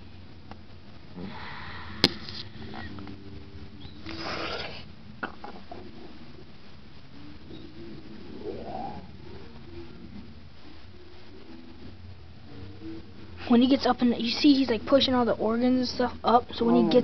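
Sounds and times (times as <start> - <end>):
breathy noise: 1.1 - 3.2, 4.0 - 5.8.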